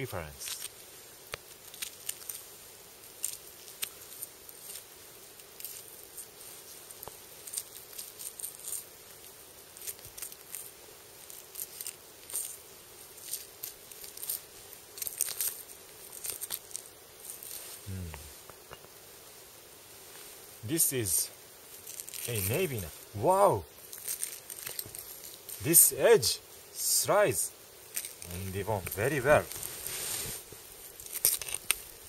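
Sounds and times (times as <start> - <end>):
meat crackling and tearing: 1.3 - 2.4, 3.1 - 6.3, 6.9 - 17.6, 21.7 - 22.5, 23.8 - 25.6, 27.9 - 28.4, 30.8 - 32.0.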